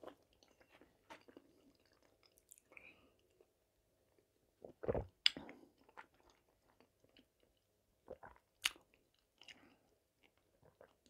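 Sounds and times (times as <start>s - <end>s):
person swallowing: 4.6s - 5.4s.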